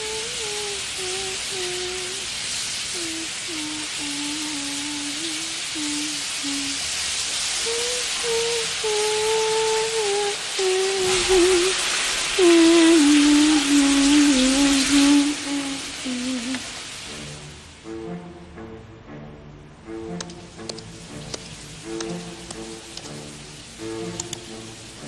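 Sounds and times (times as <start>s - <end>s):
person humming: 0.0s - 2.3s, 2.9s - 6.8s, 7.6s - 16.8s
shower running: 0.0s - 17.9s, 20.1s - 25.0s.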